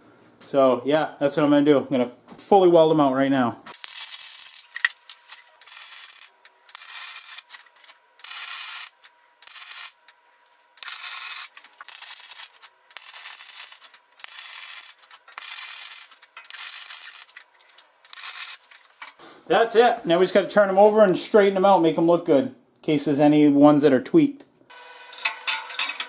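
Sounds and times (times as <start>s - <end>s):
welding arc crackling: 3.7s - 19.2s.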